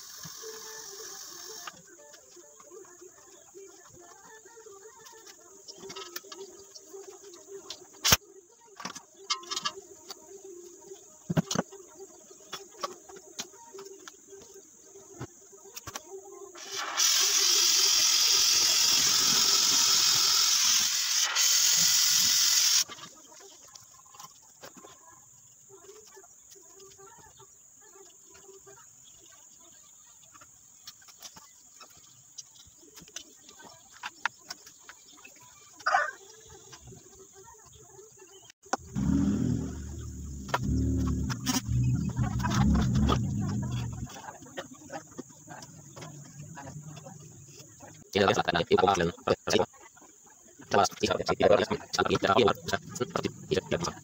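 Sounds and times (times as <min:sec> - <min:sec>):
compressed gas hissing from hose: 0:00.0 - 0:01.7, 0:16.6 - 0:22.9.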